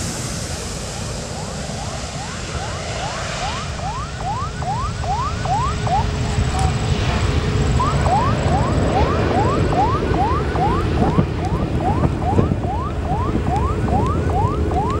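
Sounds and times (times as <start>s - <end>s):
jet engines rumbling: 0.0s - 15.0s.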